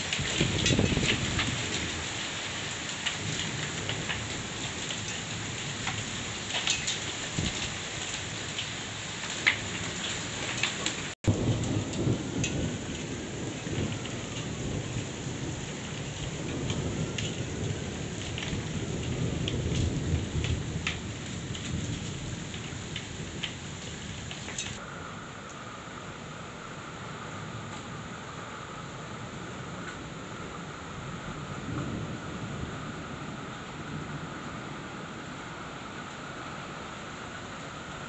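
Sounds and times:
low thunder rumbling: 0:00.0 - 0:02.2, 0:09.5 - 0:25.1, 0:30.5 - 0:35.3
sharp raindrops striking close: 0:00.0 - 0:24.8
heavy rain falling: 0:00.0 - 0:38.0.

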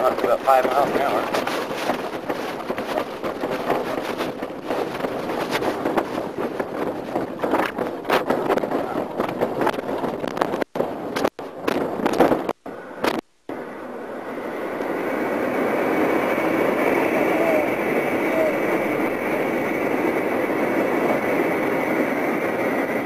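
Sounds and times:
rapid crackles and knocks: 0:00.0 - 0:13.6
wind buffeting microphone: 0:00.0 - 0:23.0.

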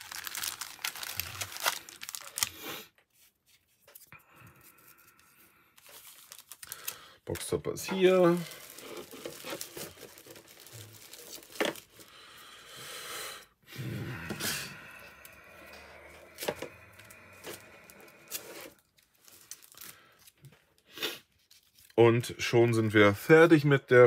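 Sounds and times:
foil packs crinkling and rustling: 0:00.0 - 0:02.7, 0:05.8 - 0:12.4, 0:16.1 - 0:22.0.

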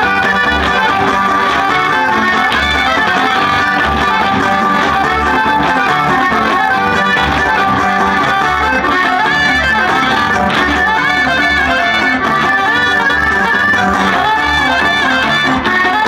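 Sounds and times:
accordion: 0:00.0 - 0:16.0
plucked strings: 0:00.0 - 0:16.0.

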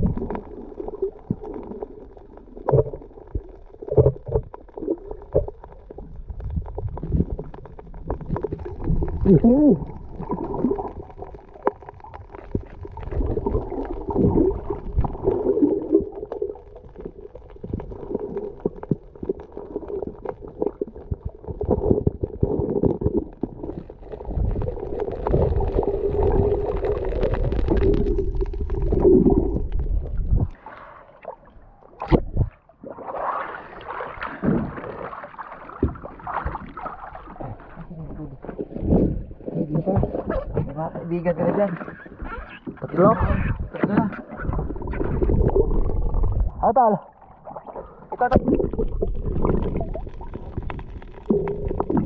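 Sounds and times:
underwater gurgling and rumbling: 0:00.0 - 0:52.0
water sloshing: 0:24.2 - 0:52.0.

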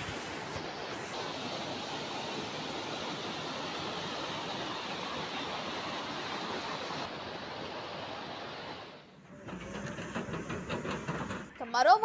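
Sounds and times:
floodwater rushing: 0:00.0 - 0:09.0.

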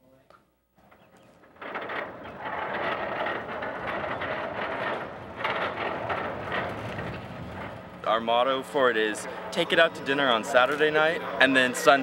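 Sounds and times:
sliding door rattling on its track: 0:00.9 - 0:08.3.

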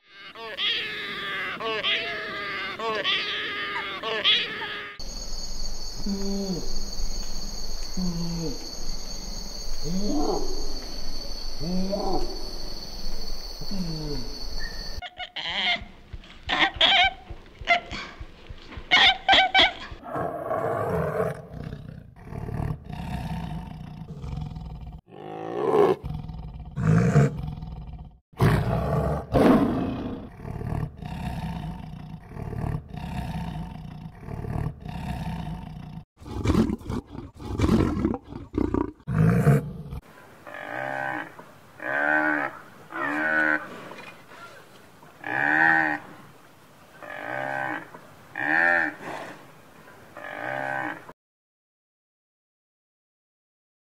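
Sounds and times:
water buffalo calling: 0:00.1 - 0:05.0, 0:13.7 - 0:18.2, 0:18.9 - 0:19.8
tigers roaring and growling: 0:20.0 - 0:44.5.

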